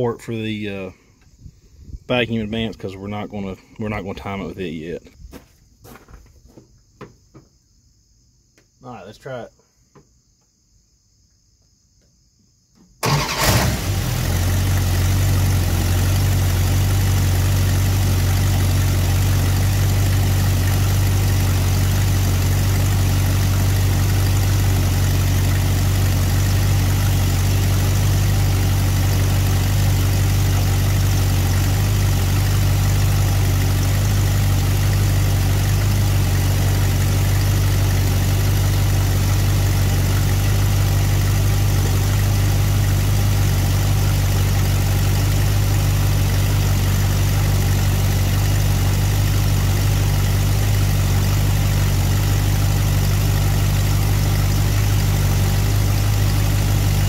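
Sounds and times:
car engine idling: 0:13.0 - 0:57.0.

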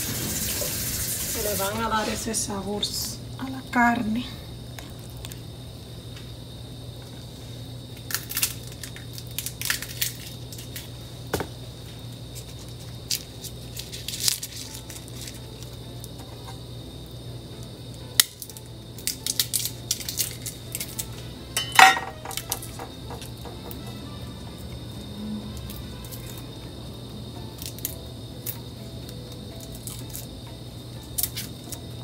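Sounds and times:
steady low hum: 0:00.0 - 0:32.0
kitchen utensils and dishes clattering: 0:21.6 - 0:23.9.

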